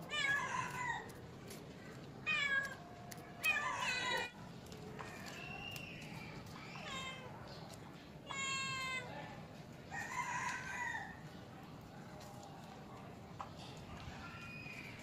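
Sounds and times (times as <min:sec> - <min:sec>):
cats meowing: 0:00.0 - 0:01.2, 0:02.2 - 0:04.4, 0:06.6 - 0:07.4, 0:08.2 - 0:09.1.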